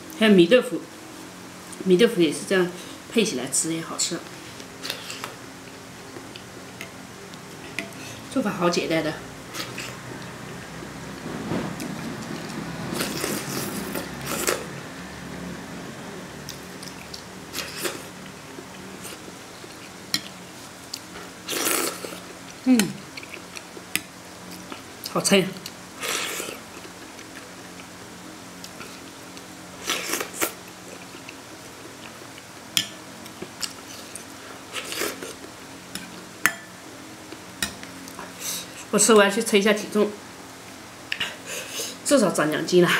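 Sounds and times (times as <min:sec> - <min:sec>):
steady low hum: 0:00.0 - 0:42.9
slurping noodles: 0:12.9 - 0:14.7, 0:21.5 - 0:22.2.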